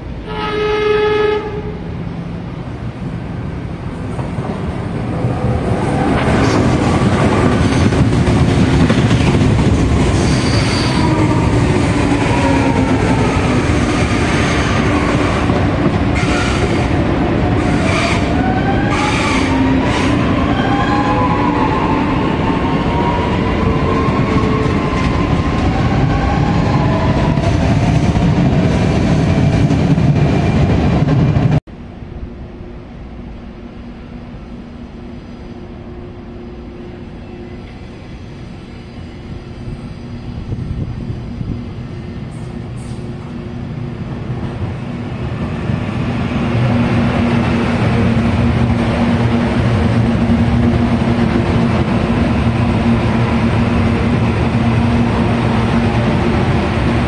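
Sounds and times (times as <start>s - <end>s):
train rumbling past: 0.0s - 57.0s
train horn blast: 0.2s - 1.9s, 10.2s - 11.8s, 16.2s - 17.0s, 17.6s - 20.3s
wheels squealing on rails: 10.0s - 15.1s.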